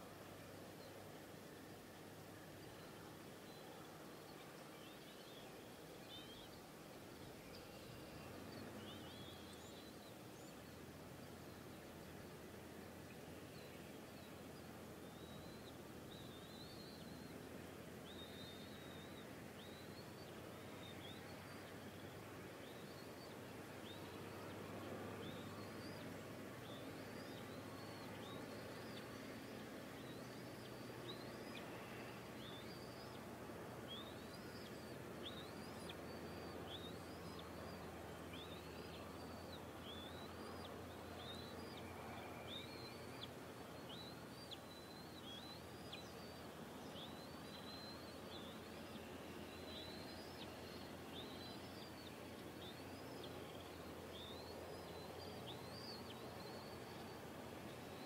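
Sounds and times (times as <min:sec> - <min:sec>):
background hiss: 0:00.0 - 0:58.0.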